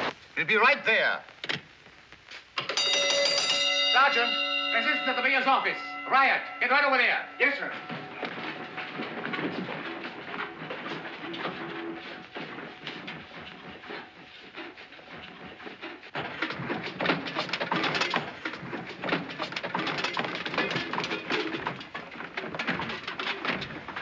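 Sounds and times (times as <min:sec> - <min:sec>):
boots clattering quickly: 0:06.8 - 0:24.0.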